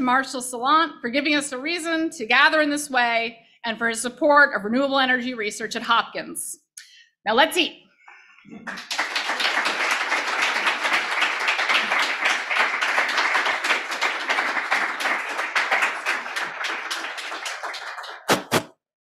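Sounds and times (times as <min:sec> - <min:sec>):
audience applauding: 0:08.6 - 0:18.7.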